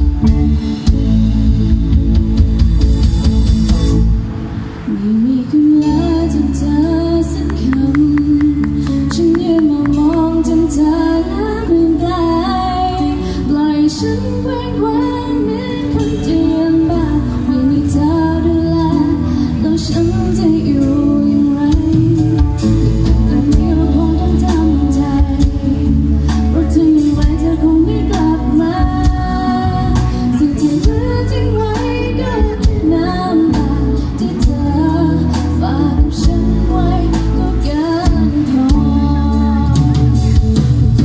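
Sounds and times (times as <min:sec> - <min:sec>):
drum kit: 0:00.0 - 0:04.8, 0:18.9 - 0:41.0
electric guitar: 0:00.0 - 0:41.0
woman singing: 0:04.9 - 0:41.0.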